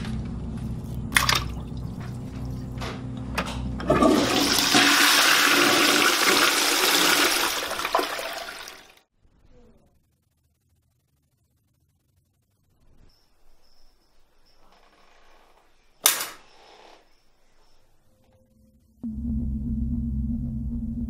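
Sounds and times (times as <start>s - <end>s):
toilet flush water rushing: 3.8s - 9.0s
low steady drone: 18.5s - 21.0s.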